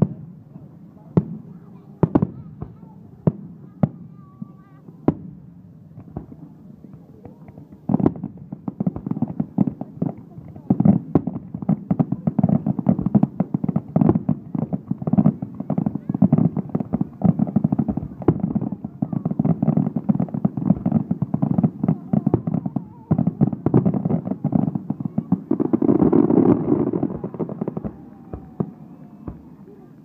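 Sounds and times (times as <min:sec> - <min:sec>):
fireworks shells bursting: 0:19.6 - 0:29.8.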